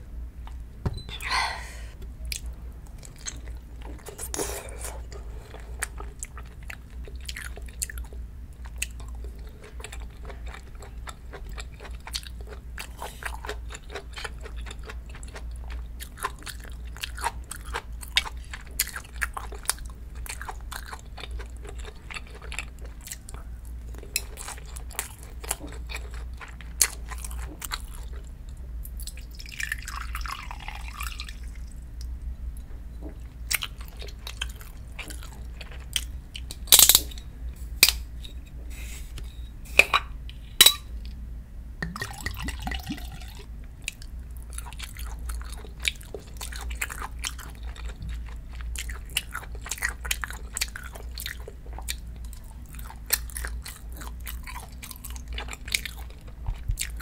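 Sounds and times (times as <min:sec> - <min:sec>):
chewing: 0:02.3 - 0:28.3, 0:33.1 - 0:36.6, 0:41.8 - 0:57.0.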